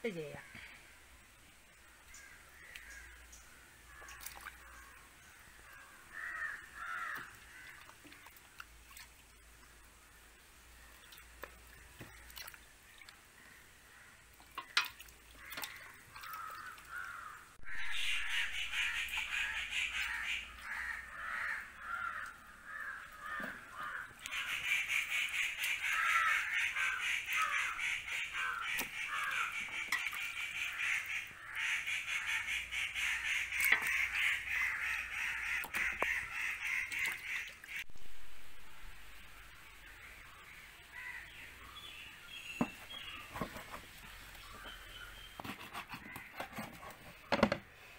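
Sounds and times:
crows cawing: 2.1s - 7.9s, 15.3s - 37.8s, 40.9s - 41.4s.

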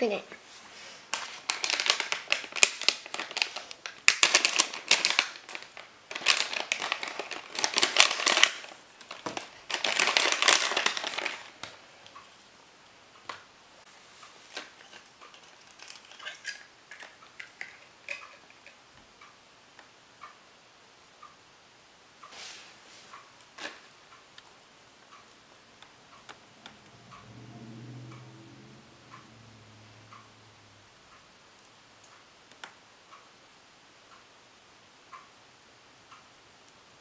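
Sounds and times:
plastic packet crinkling: 1.1s - 11.8s, 14.5s - 18.4s
small clicks and taps: 31.6s - 32.8s.

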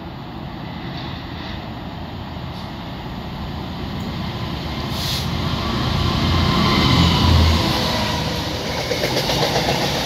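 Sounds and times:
diesel locomotive engine: 0.0s - 10.0s
train rail noise: 0.0s - 10.0s
short hiss: 4.9s - 5.3s.

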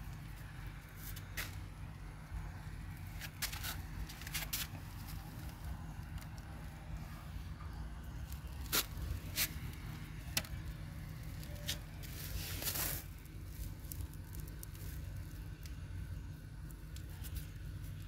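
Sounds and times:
steady low rumble: 0.0s - 18.0s
scraping rustle: 3.1s - 5.7s, 8.3s - 9.9s, 11.3s - 15.3s.

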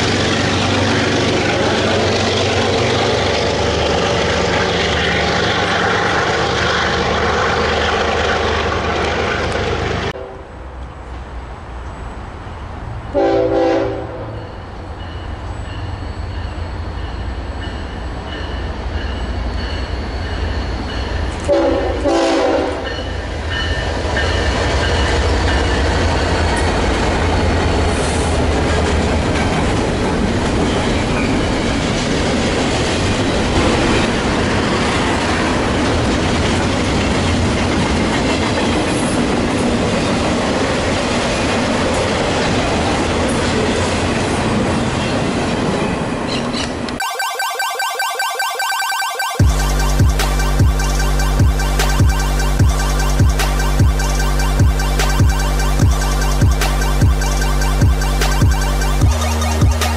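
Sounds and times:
train air horn blasts: 13.1s - 14.4s, 21.5s - 22.8s
train wheels clattering on rails: 22.2s - 47.0s
diesel engine drone: 49.4s - 59.9s.

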